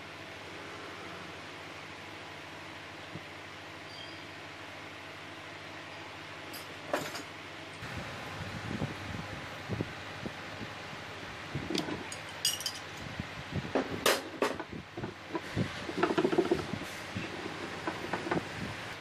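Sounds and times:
wrench clinking on threaded rod: 0:11.8 - 0:12.9.

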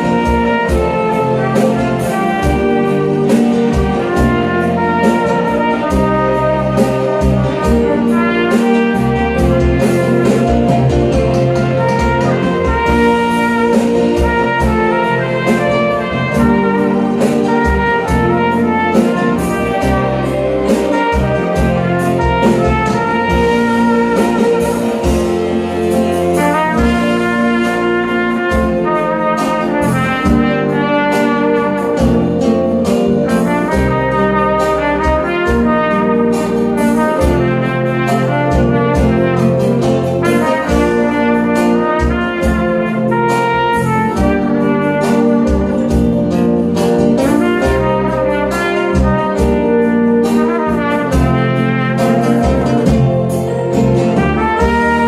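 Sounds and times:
backing track with bass and beat: 0:00.0 - 0:55.0
trumpet playing melody: 0:00.0 - 0:55.0.

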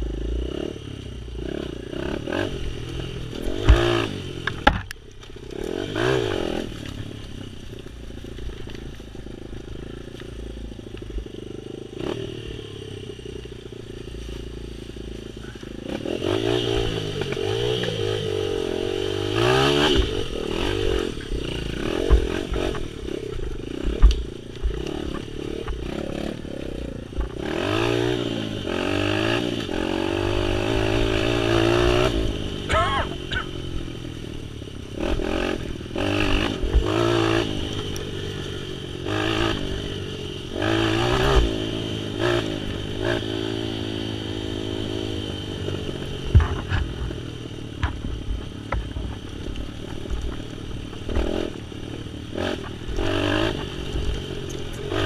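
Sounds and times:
motorcycle engine revving: 0:00.0 - 0:55.0
knocks and clatter over bumps: 0:02.8 - 0:05.8, 0:19.7 - 0:27.4, 0:46.2 - 0:51.7.

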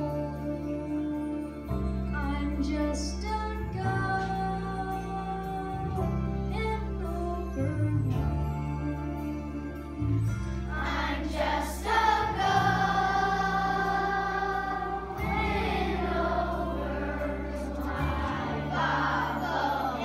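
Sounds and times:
instrumental accompaniment: 0:00.0 - 0:20.0
steady bass notes: 0:07.6 - 0:20.0.

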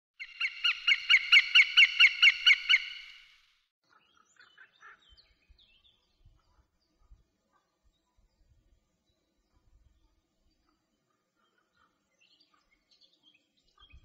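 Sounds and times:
hawk calling: 0:00.2 - 0:03.3
faint small birds chirping: 0:00.2 - 0:14.0.

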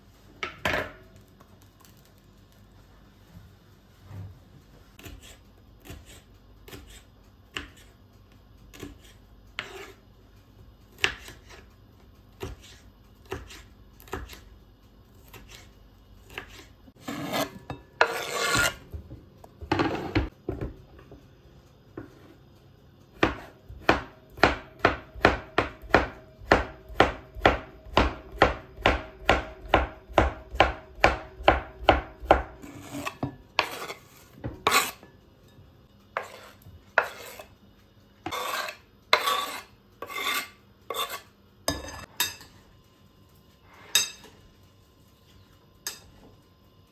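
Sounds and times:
knife chopping on cutting board: 0:05.0 - 0:07.9, 0:08.7 - 0:10.0, 0:10.9 - 0:11.7, 0:12.4 - 0:14.5, 0:16.3 - 0:18.9, 0:23.2 - 0:35.0, 0:36.2 - 0:37.5
rustling scrape on board: 0:09.0 - 0:10.0, 0:16.4 - 0:18.8, 0:32.6 - 0:35.0, 0:36.2 - 0:37.5, 0:38.3 - 0:41.3.

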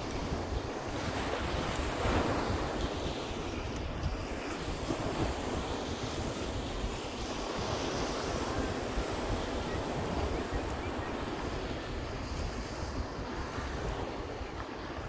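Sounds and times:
surf breaking on beach: 0:00.0 - 0:15.0
wind on microphone: 0:00.0 - 0:15.0.

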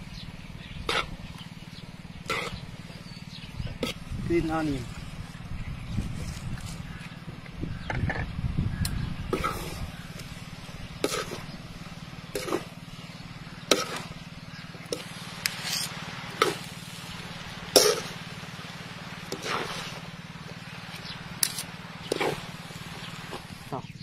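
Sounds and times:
steady low hum: 0:00.0 - 0:24.0
metal spatula scraping a wok: 0:00.9 - 0:01.2, 0:02.3 - 0:02.6, 0:09.3 - 0:11.5, 0:12.3 - 0:12.8, 0:13.5 - 0:14.1, 0:14.9 - 0:17.0, 0:17.7 - 0:18.3, 0:19.1 - 0:23.6.

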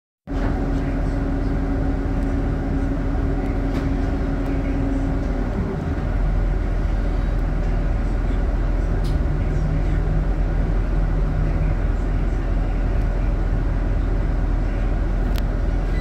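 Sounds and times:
bus diesel engine running: 0:00.3 - 0:16.0
steady hum: 0:00.3 - 0:16.0.

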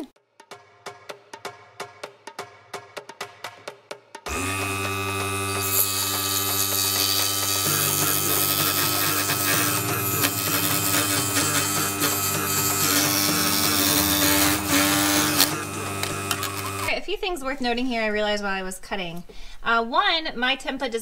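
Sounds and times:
saw blade hissing through board: 0:04.3 - 0:16.9
scroll saw motor hum: 0:04.3 - 0:16.9.

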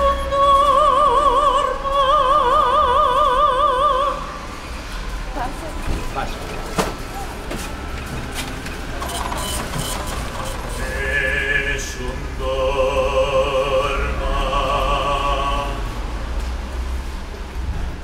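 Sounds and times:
man singing operatically: 0:10.8 - 0:16.0.

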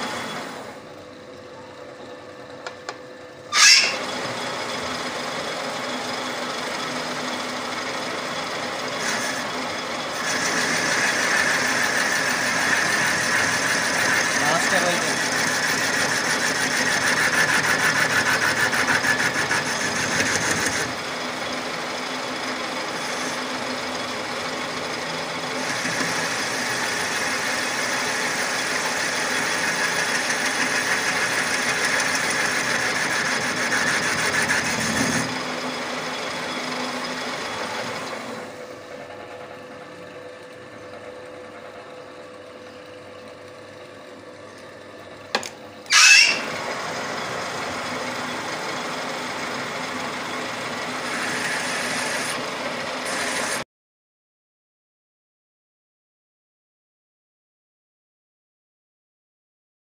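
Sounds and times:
metal lathe cutting: 0:03.4 - 0:42.4, 0:45.8 - 0:53.6.

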